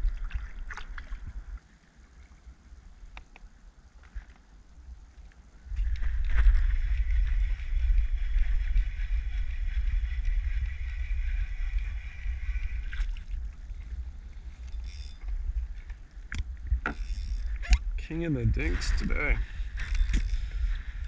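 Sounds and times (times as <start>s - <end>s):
wind rumble on microphone: 0.0s - 1.6s, 4.6s - 21.0s
fishing reel whirring: 5.8s - 18.0s, 18.6s - 21.0s.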